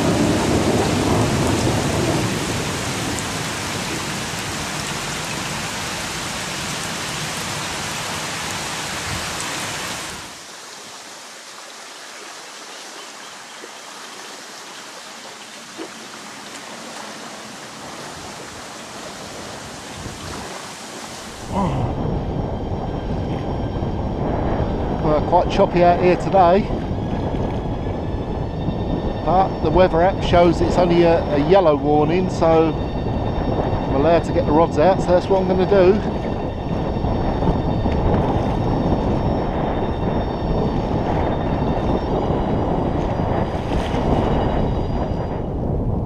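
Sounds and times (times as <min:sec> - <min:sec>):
thunder rumbling: 0:00.0 - 0:10.4, 0:21.3 - 0:46.0
heavy rain falling: 0:00.0 - 0:22.2.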